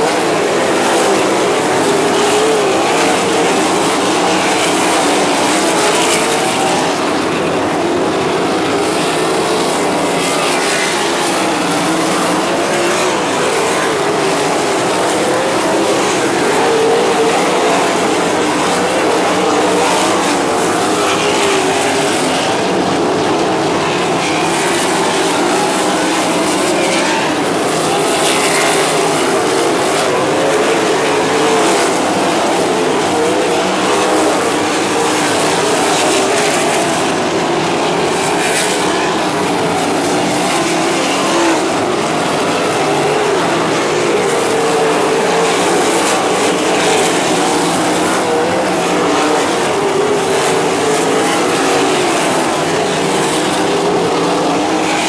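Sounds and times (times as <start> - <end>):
race car engines running hard: 0.0 - 55.0.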